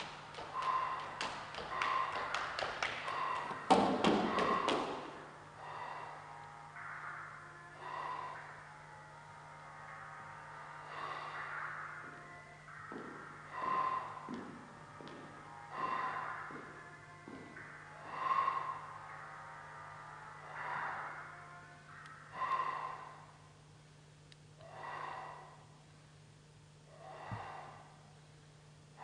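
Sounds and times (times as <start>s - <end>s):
low hum: 0.0s - 29.0s.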